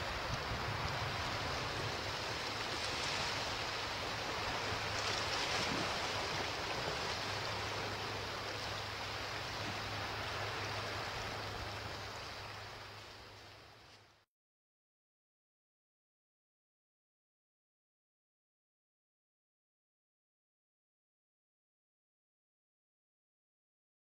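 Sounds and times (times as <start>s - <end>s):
rushing water: 0.0s - 14.3s.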